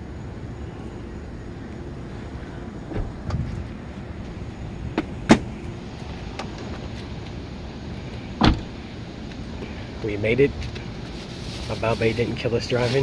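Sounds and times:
low rumble: 0.0 - 9.0
car doors shutting: 2.8 - 3.7, 4.9 - 5.7, 8.3 - 8.8.

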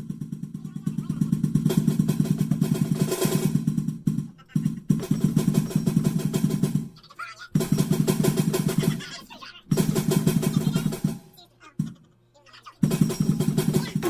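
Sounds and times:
music with fast drumming: 0.0 - 12.0, 12.7 - 14.0.

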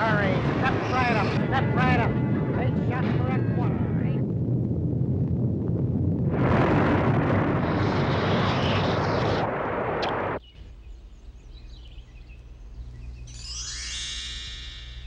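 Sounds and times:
loud explosion-like rumbling: 0.2 - 10.4.

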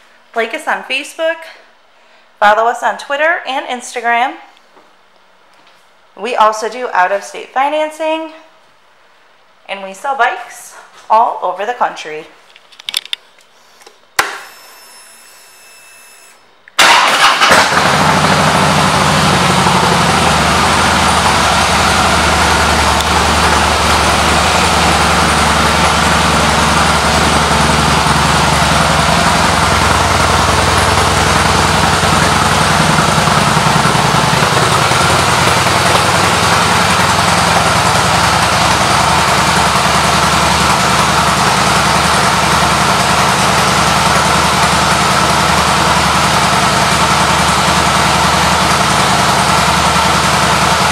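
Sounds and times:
fuel pump whine: 14.2 - 50.9
motorcycle engine starting and idling: 16.2 - 50.9.

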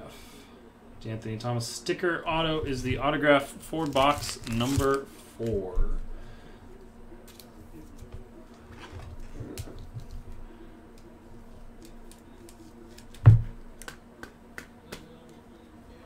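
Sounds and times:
trading cards clicking and tapping: 11.8 - 15.4
knock on a table: 13.2 - 13.6.

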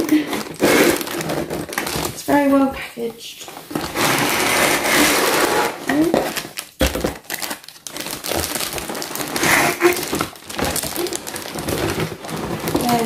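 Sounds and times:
cardboard box rustling and scraping: 3.7 - 6.4, 9.2 - 13.0.

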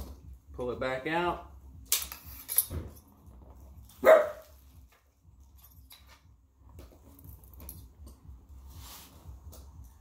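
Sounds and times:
dog barking: 4.0 - 4.5.

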